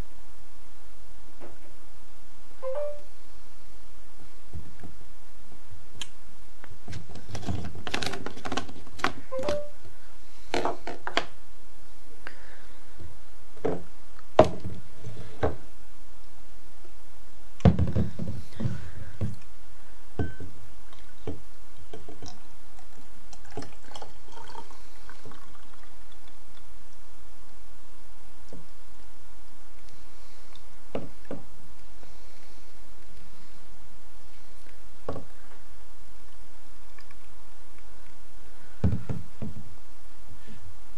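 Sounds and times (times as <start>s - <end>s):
juice pouring into a glass: 22.1s - 26.6s.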